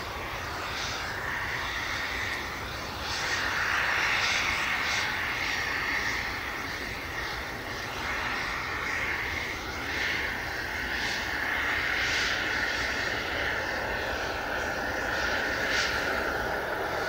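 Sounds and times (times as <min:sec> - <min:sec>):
jet engines whining: 0:00.0 - 0:17.0.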